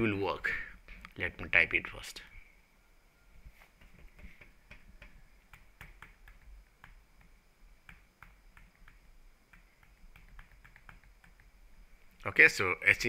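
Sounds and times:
keyboard typing clicks: 0:03.8 - 0:11.5.

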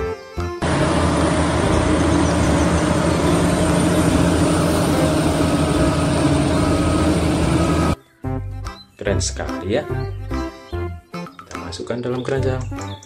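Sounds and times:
diesel engine running: 0:00.6 - 0:08.0
snow plow rushing noise: 0:00.6 - 0:08.0.

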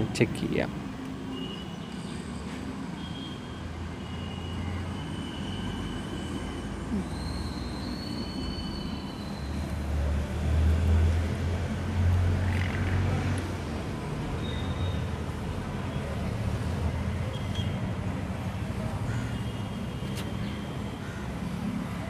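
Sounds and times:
faint high whistling: 0:04.0 - 0:09.9, 0:14.4 - 0:15.1.

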